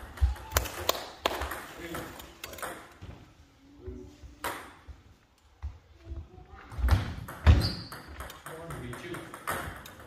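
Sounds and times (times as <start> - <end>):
table tennis ball bouncing: 0.0 - 3.1, 4.4 - 4.9, 6.7 - 10.0.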